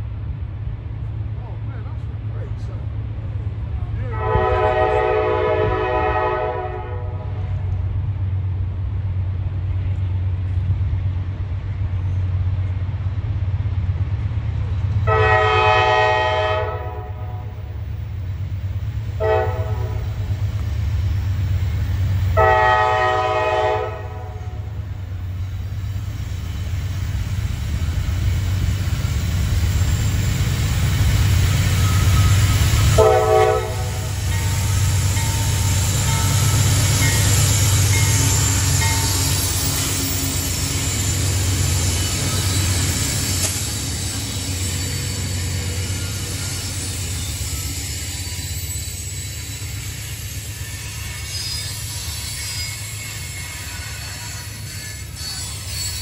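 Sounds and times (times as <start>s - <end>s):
diesel locomotive engine rumble: 0.0s - 56.0s
train air horn blasts: 4.1s - 7.6s, 15.1s - 17.6s, 19.2s - 20.2s, 22.3s - 24.8s, 32.0s - 34.9s, 50.6s - 56.0s.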